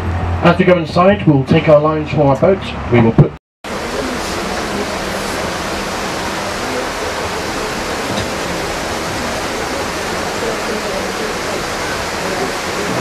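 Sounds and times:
flowing water rushing: 0:03.6 - 0:13.0.

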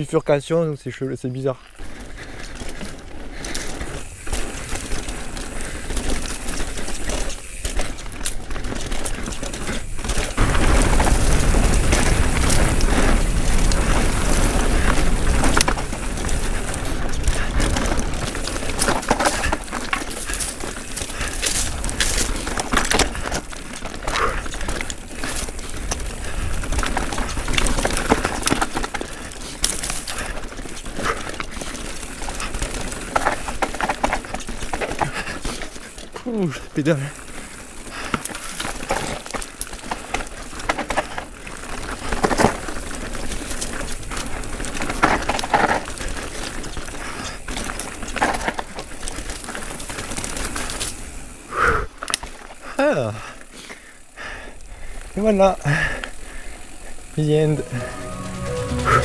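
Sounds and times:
bike tyres on dirt: 0:00.0 - 0:59.0
bike knocks and rattles: 0:02.6 - 0:36.2, 0:37.9 - 0:51.1.

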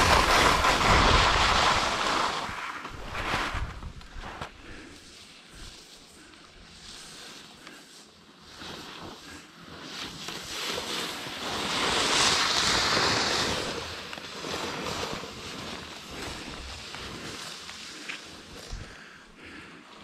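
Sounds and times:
wind rushing over microphone: 0:00.0 - 0:04.6
skis scraping through snow: 0:00.0 - 0:20.0.

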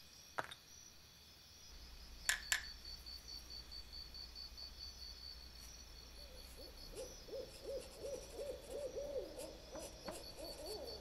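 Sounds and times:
rapid hooting calls: 0:06.1 - 0:11.0.

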